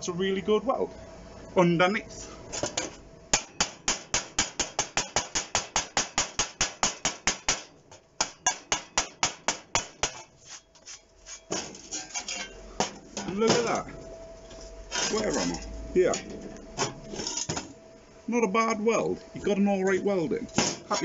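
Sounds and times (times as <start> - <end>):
hammer striking metal: 3.3 - 10.3.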